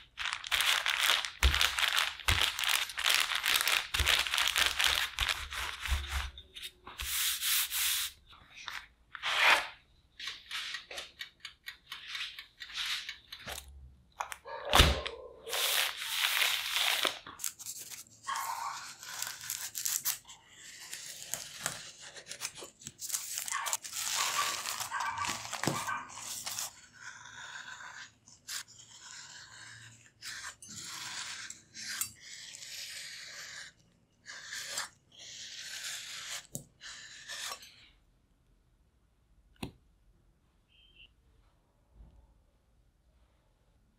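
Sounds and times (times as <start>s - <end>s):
rustling handling noise: 0.0s - 11.2s
knife crunching through potato: 0.5s - 6.4s, 15.5s - 37.7s.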